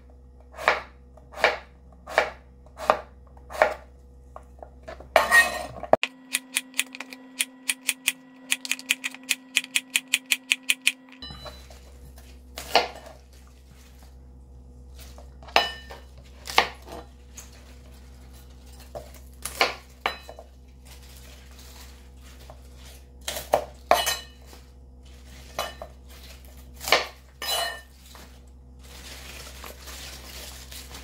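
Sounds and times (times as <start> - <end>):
knife chopping on cutting board: 0.5 - 3.9, 15.5 - 17.0, 19.4 - 20.3, 26.8 - 27.2.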